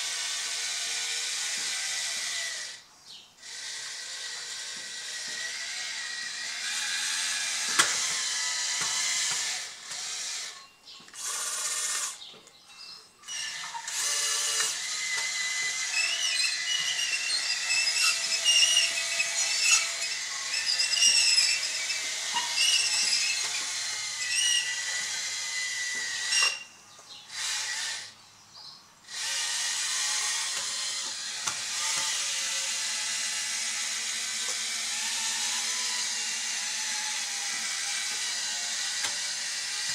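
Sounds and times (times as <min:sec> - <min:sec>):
electric motor whine: 0:00.0 - 0:12.3, 0:13.2 - 0:26.8, 0:29.0 - 0:39.9.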